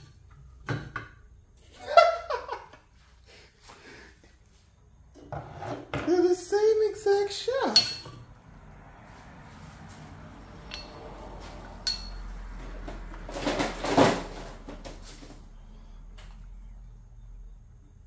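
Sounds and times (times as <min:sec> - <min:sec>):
hand tools clicking: 0:10.7 - 0:11.0.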